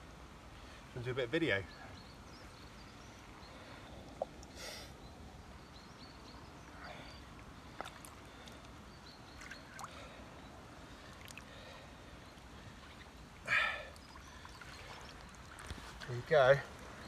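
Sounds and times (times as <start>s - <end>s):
water splashes and drips: 7.4s - 10.2s, 10.9s - 11.8s, 13.7s - 17.0s.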